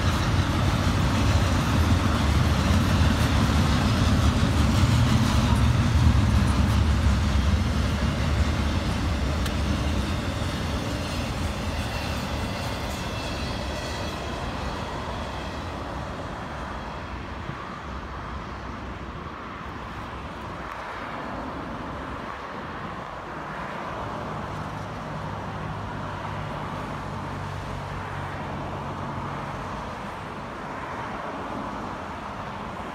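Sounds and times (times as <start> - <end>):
rumble of rolling vehicles: 0.0 - 32.9.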